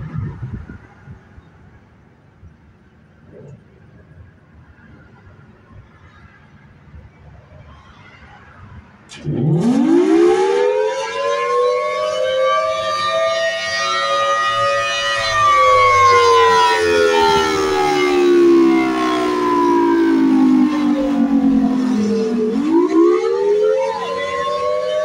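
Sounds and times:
rotating warning siren: 9.1 - 25.0.

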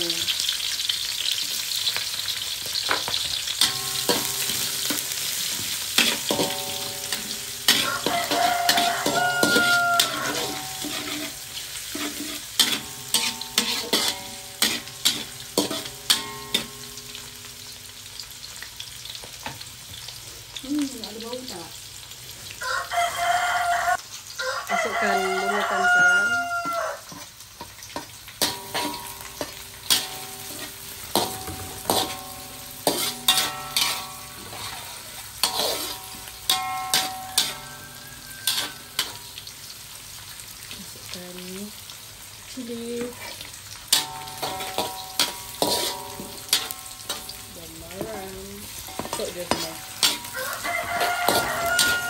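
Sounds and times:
food sizzling in hot oil: 0.0 - 52.0
metal spatula scraping wok: 3.5 - 17.5, 25.1 - 39.5, 43.0 - 52.0
rooster crowing: 7.7 - 10.8, 22.6 - 27.1, 37.3 - 39.1, 50.1 - 52.0.

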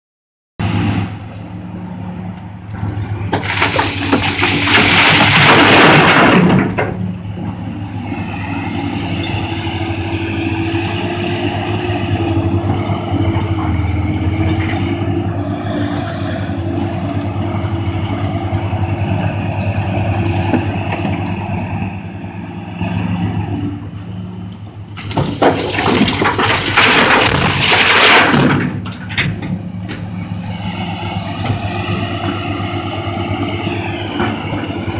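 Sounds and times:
excavator diesel engine running: 0.6 - 34.9
rock crashing into truck bed: 3.3 - 7.0, 25.0 - 29.4.

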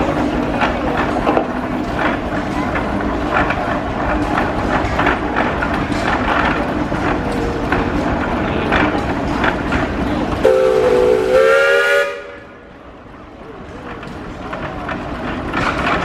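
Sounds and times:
steam engine exhaust chuffing: 0.0 - 13.0
steam whistle blowing: 10.4 - 12.5.

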